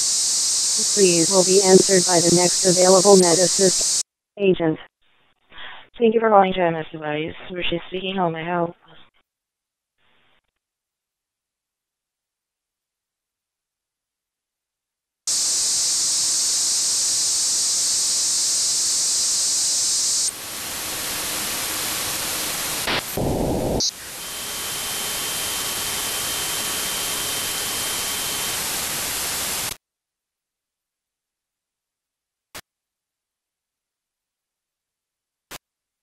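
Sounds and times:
radio static hiss: 0.0 - 4.0, 15.3 - 29.8.

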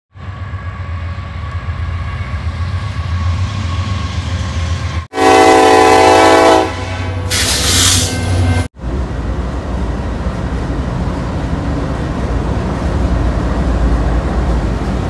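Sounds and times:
train rumbling past: 0.1 - 15.0
locomotive horn blast: 5.1 - 8.7.

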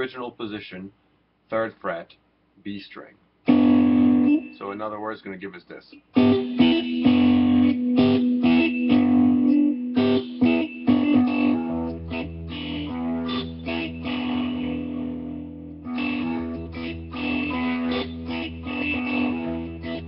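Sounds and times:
electric guitar blues riff: 3.5 - 4.7, 5.9 - 20.0
deeper guitar note ringing: 6.2 - 20.0.

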